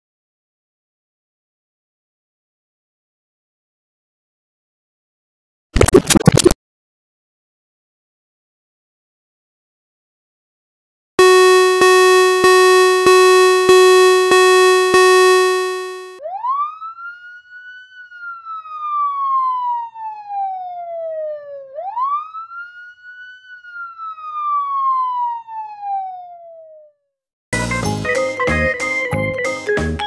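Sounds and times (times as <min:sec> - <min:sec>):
harsh buzzing horn: 0:11.2 - 0:16.2
siren wailing: 0:11.2 - 0:26.9.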